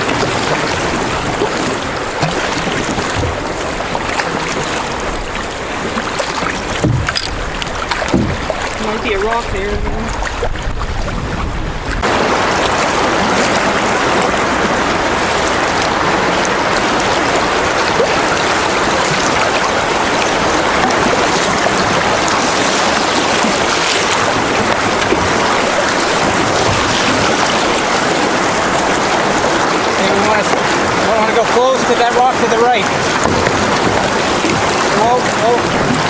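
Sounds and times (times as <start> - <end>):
river water rushing through rapid: 0.0 - 36.0.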